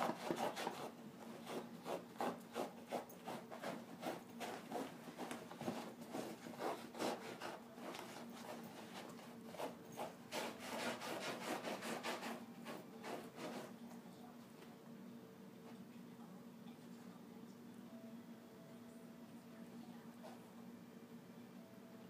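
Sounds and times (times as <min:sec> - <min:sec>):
dog scraping a blanket on carpet: 0:00.0 - 0:13.8.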